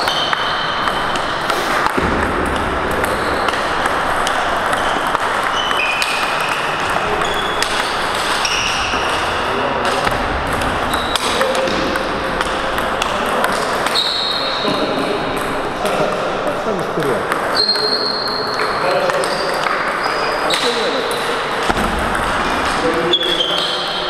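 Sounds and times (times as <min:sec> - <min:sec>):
table tennis balls clicking: 0:00.0 - 0:24.0
shoes squeaking on floor: 0:03.0 - 0:03.8, 0:04.5 - 0:10.0, 0:10.8 - 0:11.4, 0:13.6 - 0:15.1, 0:17.5 - 0:21.0, 0:23.0 - 0:24.0.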